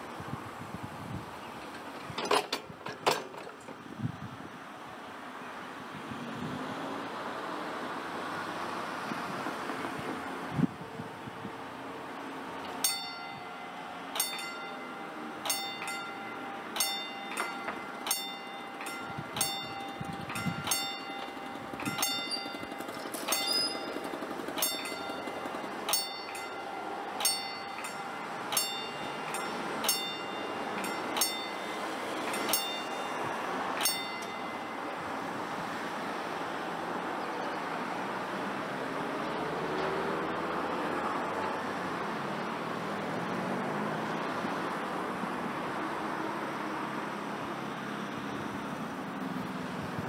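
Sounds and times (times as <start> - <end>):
steady background noise: 0.0 - 50.0
level crossing bell ringing: 12.7 - 36.0.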